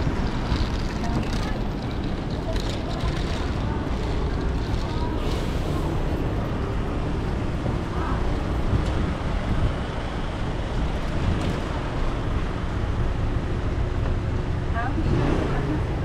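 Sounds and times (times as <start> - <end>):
faint voices: 0.0 - 9.4
crowd noise: 0.0 - 12.0
low rumble of traffic: 0.0 - 16.0.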